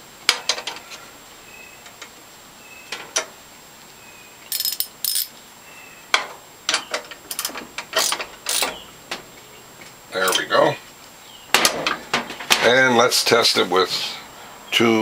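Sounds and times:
hand ratchet clicking: 7.3s - 8.7s.

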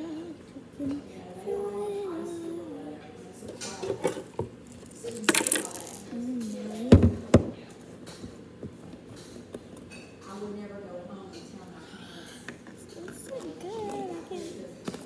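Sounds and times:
small hard objects clinking: 4.7s - 6.6s.

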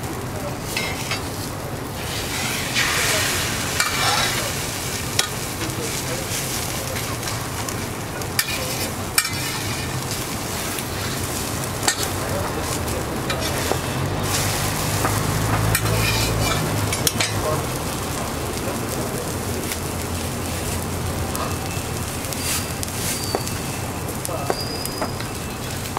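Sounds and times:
egg sizzling on griddle: 0.0s - 25.9s
metal spatula scraping griddle: 0.7s - 7.8s, 8.4s - 17.5s, 22.4s - 23.4s.

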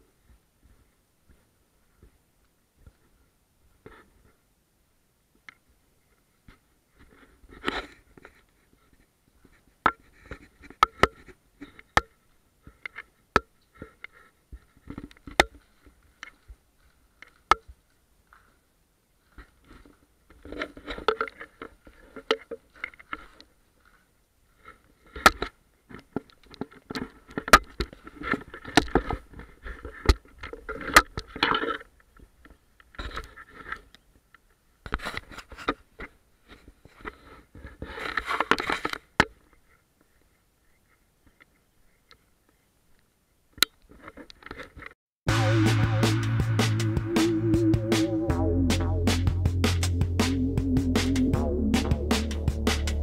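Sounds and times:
scraping against microphone: 6.1s - 12.0s, 19.2s - 25.5s, 33.0s - 34.0s, 34.9s - 42.6s.

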